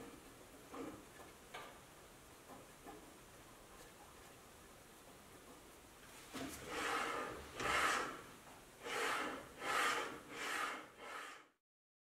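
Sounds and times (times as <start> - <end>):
metal arm sliding along rail: 6.6 - 11.6.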